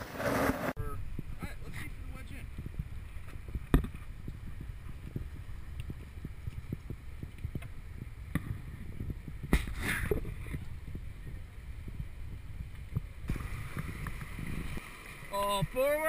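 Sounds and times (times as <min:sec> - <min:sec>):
wind noise on microphone: 0:00.8 - 0:15.8
fast river rushing: 0:13.3 - 0:16.0.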